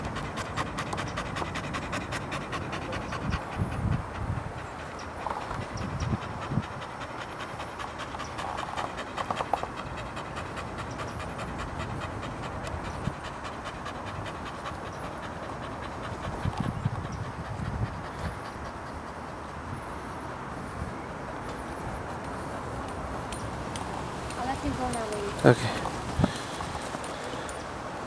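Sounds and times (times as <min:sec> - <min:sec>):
dog panting: 0:00.0 - 0:28.0.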